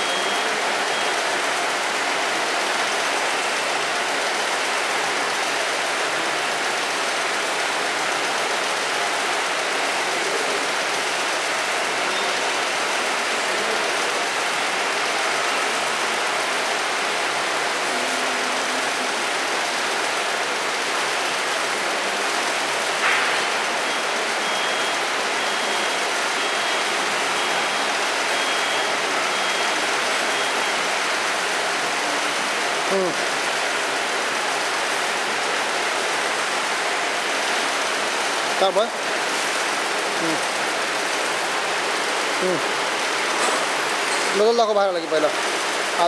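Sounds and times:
machine running steadily: 0.0s - 46.0s.

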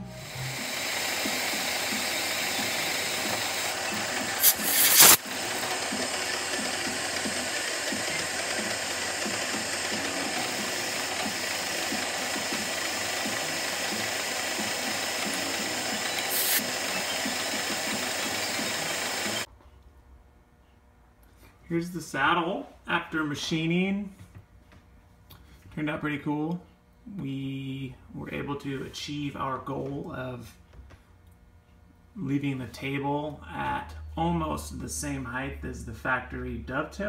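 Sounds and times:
loud harsh noise: 0.0s - 19.5s
milling machine cutting metal: 0.0s - 19.5s.

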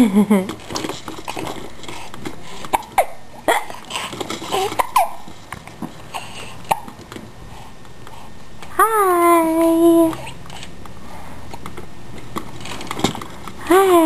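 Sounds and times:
baby laughing and squeaking: 2.9s - 5.3s.

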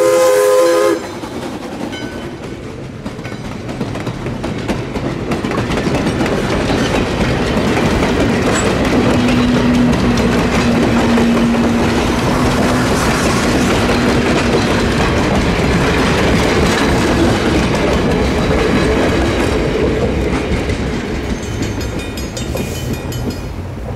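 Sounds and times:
wheels clicking over rail joints: 1.0s - 23.9s.

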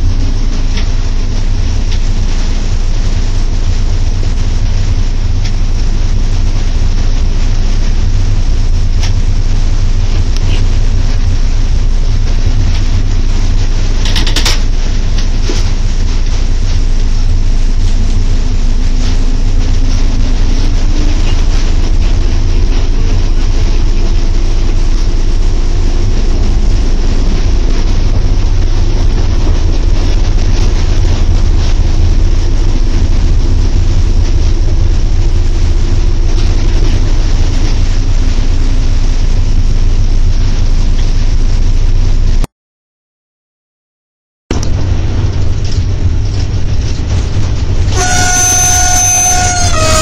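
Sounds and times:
train rumble and rattle: 0.0s - 42.5s, 44.5s - 50.0s
faint humming tone: 47.9s - 50.0s.

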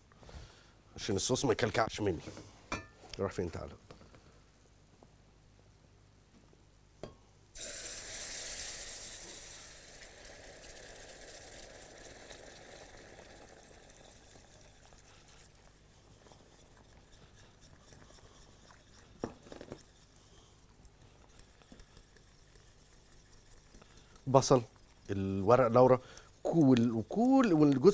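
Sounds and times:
roux sizzling in milk: 7.6s - 27.9s.

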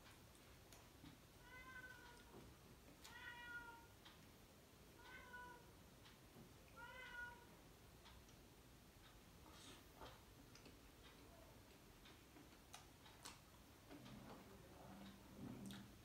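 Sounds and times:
cat meowing faintly: 1.4s - 2.3s, 3.0s - 3.9s, 5.0s - 5.7s, 6.7s - 7.5s.

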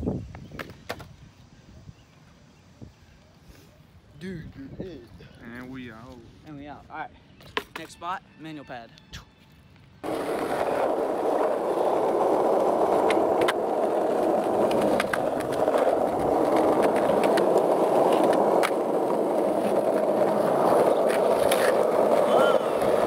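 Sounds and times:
skateboard wheels rolling: 0.2s - 1.4s, 10.0s - 23.0s.

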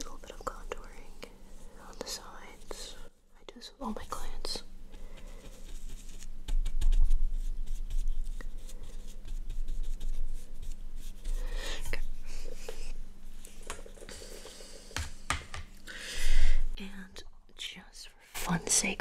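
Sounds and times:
brush scratching on microphone: 5.2s - 14.3s.

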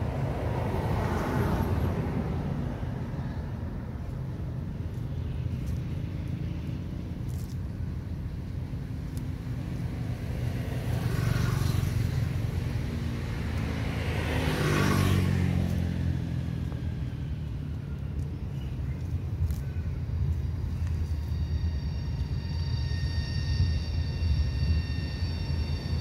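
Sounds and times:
vehicle passing by: 0.0s - 19.6s.

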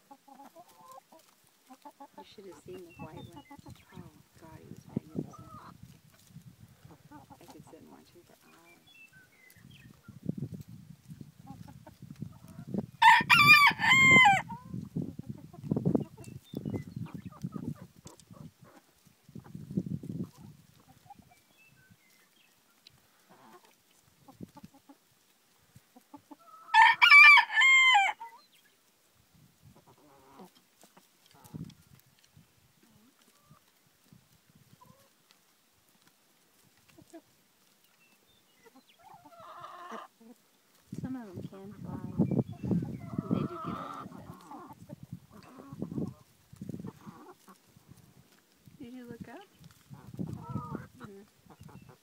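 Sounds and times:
hens clucking softly: 0.0s - 8.8s, 9.5s - 12.8s, 14.1s - 21.5s, 22.8s - 26.7s, 29.6s - 35.4s, 36.6s - 37.4s, 38.6s - 48.6s, 49.4s - 52.0s
rooster crowing: 13.0s - 14.5s, 26.7s - 28.3s.

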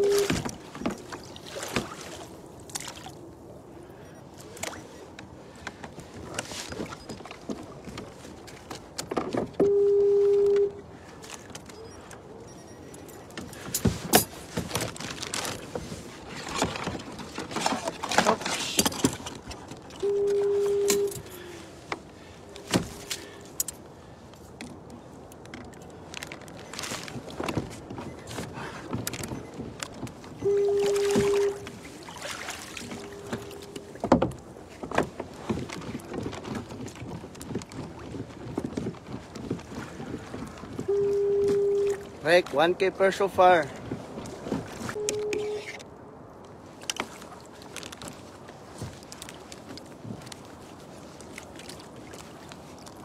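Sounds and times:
light wind: 0.0s - 53.0s
electronic beep: 11.7s - 13.3s, 30.4s - 31.6s
rustling of gear and clothing: 12.9s - 42.6s, 46.5s - 53.0s.

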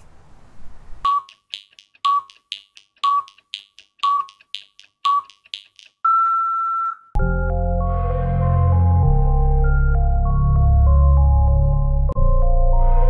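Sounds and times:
short countdown beeps: 1.0s - 3.4s, 4.0s - 6.4s
long steady beep: 1.1s - 1.4s
sharp clicks: 1.1s - 6.0s.

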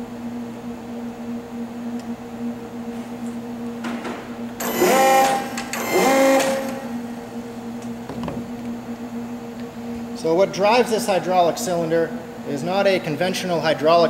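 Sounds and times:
steady low hum: 0.0s - 14.0s
servo motor and pump running: 4.6s - 7.0s.

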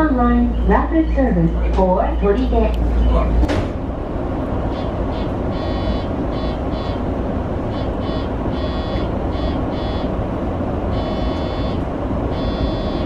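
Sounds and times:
electric train humming: 0.0s - 13.0s
high electronic chirps: 11.0s - 13.0s.

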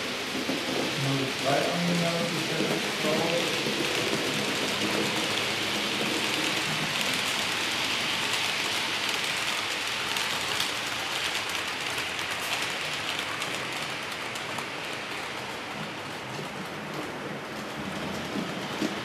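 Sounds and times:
model train wheels hissing on rails: 0.0s - 15.5s.

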